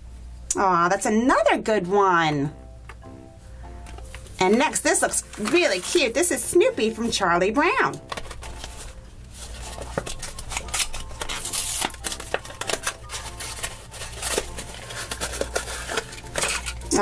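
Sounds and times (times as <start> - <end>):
cardboard box tearing: 9.7 - 16.8.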